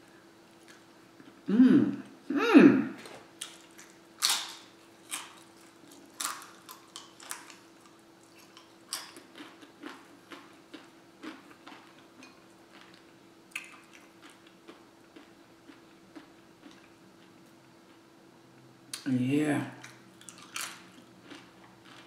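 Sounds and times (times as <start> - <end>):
faint steady hum: 0.0 - 22.0
chewing and crunching chips: 3.0 - 18.0, 19.8 - 22.0.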